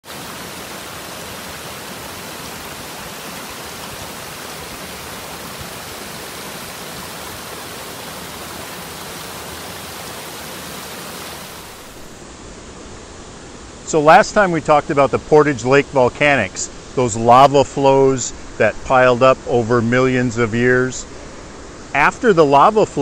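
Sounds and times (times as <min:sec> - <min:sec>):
water rushing over small waterfall: 0:00.0 - 0:12.1.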